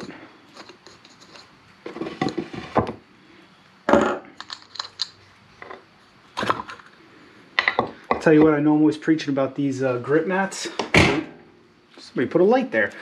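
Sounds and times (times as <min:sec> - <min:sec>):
metal tools clicking and clattering: 0:04.4 - 0:05.2.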